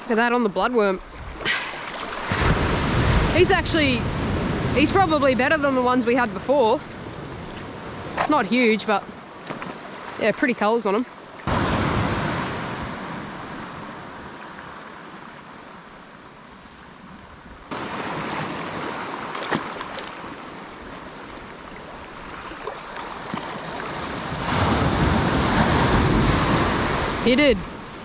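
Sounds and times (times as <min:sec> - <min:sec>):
waves washing on shoreline: 0:00.0 - 0:28.0
wind on microphone: 0:23.5 - 0:28.0.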